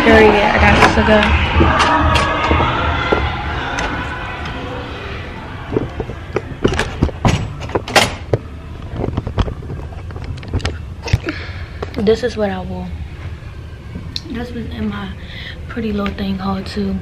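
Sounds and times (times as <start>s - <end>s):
music: 0.1s - 4.0s.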